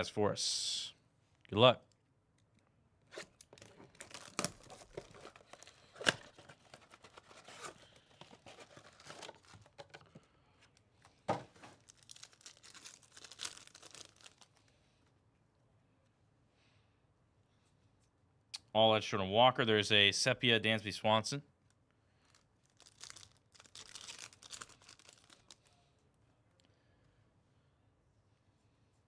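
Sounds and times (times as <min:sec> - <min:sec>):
foil pack tearing and crinkling: 0:03.2 - 0:09.8, 0:11.6 - 0:14.6, 0:22.7 - 0:25.6.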